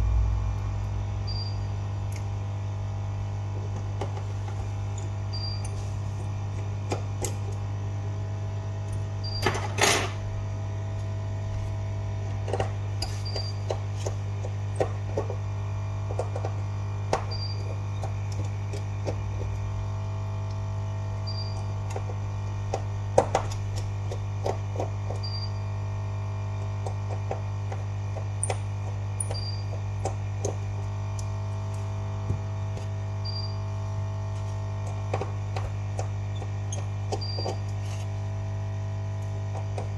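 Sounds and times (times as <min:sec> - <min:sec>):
steady electrical hum: 0:00.0 - 0:39.9.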